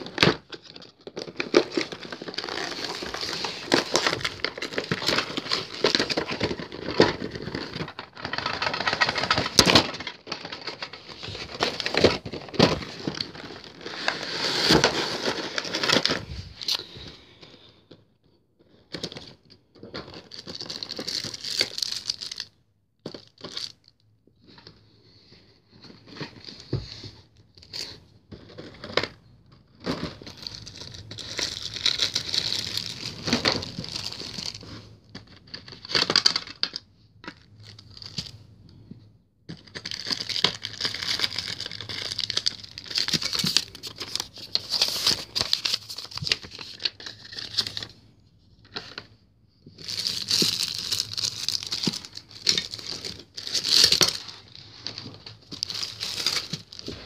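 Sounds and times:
plastic packaging crinkling: 0.0s - 17.0s, 20.1s - 22.5s, 29.9s - 38.4s, 39.6s - 48.0s, 49.8s - 57.0s.

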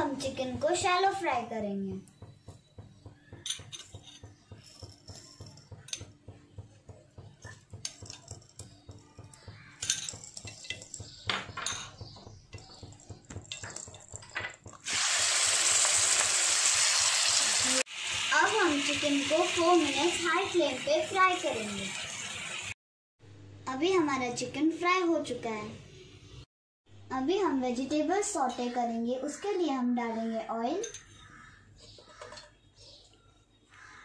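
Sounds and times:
cookware clicks and knocks: 3.4s - 6.2s, 7.4s - 9.0s, 9.8s - 14.8s, 31.9s - 32.6s
chicken sizzling in hot oil: 14.7s - 22.8s.

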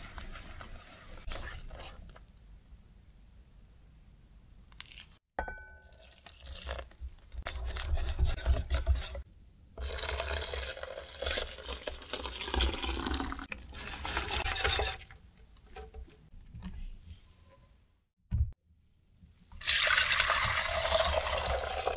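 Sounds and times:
whisk stirring in a glass bowl: 0.0s - 1.9s, 7.4s - 9.2s
glass clink: 5.4s - 6.2s.

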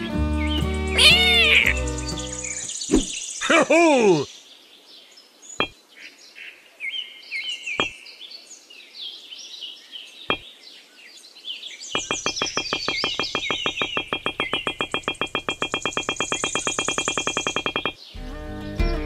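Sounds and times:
birds chirping: 0.0s - 19.0s
cat meowing: 1.0s - 1.8s
fast synthesizer tune: 12.0s - 18.0s.

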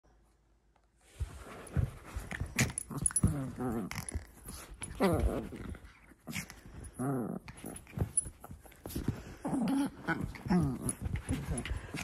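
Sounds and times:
small dog growling and whining: 2.6s - 8.2s, 9.4s - 12.0s.

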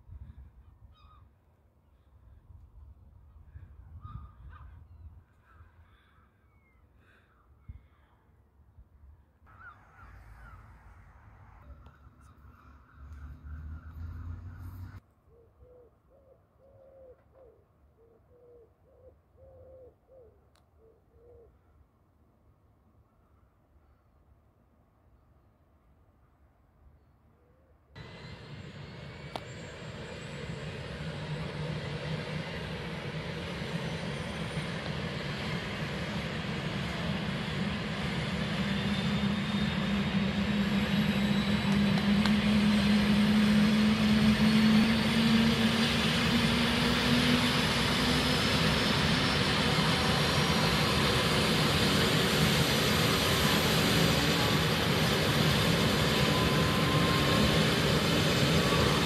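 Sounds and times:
helicopter turbine whine: 28.0s - 59.0s.

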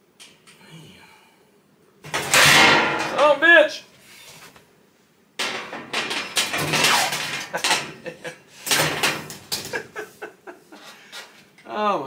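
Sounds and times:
metal clattering and scraping: 2.1s - 3.3s, 5.4s - 9.9s.

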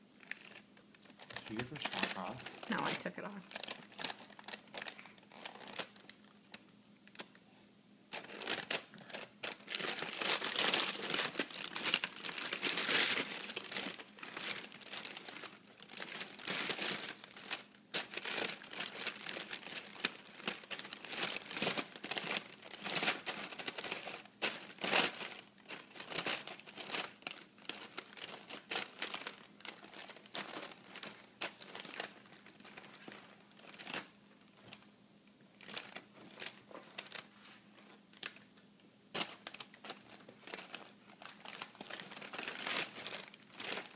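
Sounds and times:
plastic bag crinkling: 0.2s - 7.4s, 8.1s - 34.9s, 35.6s - 43.9s.

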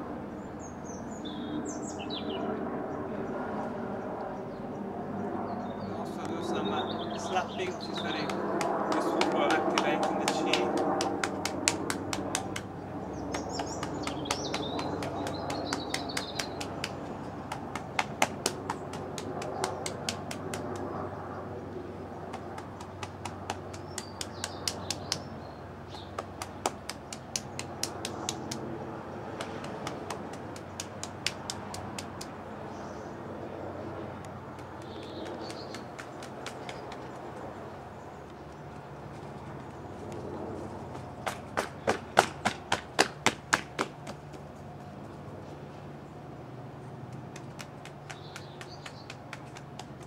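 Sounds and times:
hands slapping the body: 8.0s - 12.7s, 13.3s - 20.8s, 22.3s - 25.3s, 26.1s - 28.6s, 29.4s - 32.3s, 34.6s - 37.2s, 41.3s - 44.3s, 47.1s - 50.0s.

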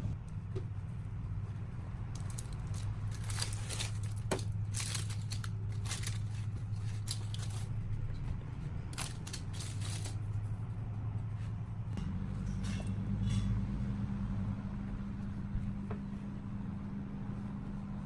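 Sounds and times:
low hum: 0.0s - 18.0s
parchment paper crinkling: 2.1s - 10.4s.

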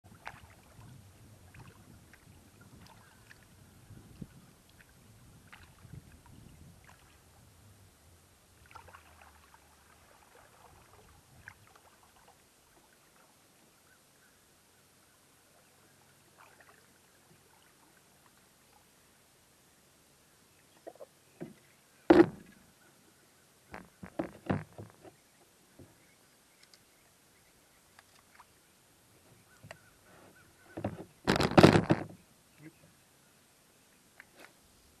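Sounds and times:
light taps and knocks on kayak: 20.8s - 22.6s, 23.7s - 25.2s, 29.5s - 29.9s, 30.7s - 32.2s.

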